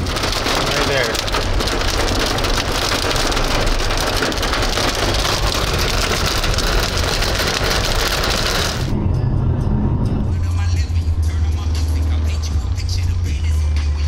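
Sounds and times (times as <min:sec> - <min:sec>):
hail and rain on car roof: 0:00.0 - 0:08.9
low road rumble: 0:00.0 - 0:14.0.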